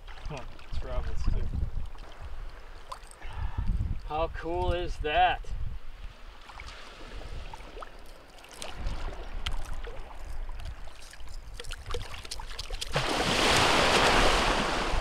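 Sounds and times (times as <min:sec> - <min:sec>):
water sloshing: 0:00.0 - 0:03.2, 0:06.3 - 0:15.0
loud rush of splashing water: 0:11.8 - 0:15.0.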